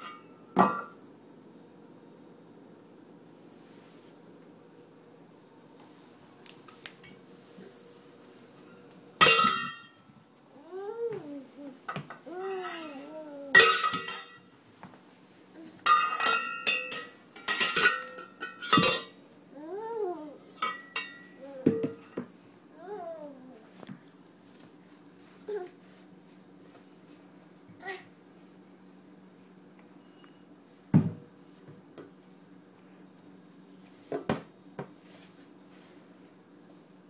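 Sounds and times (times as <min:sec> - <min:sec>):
metal pot clanging on floor: 0:09.2 - 0:10.0, 0:13.6 - 0:14.5, 0:15.9 - 0:19.2
child's high-pitched vocal sounds: 0:10.6 - 0:13.6, 0:19.5 - 0:20.4, 0:22.8 - 0:23.7.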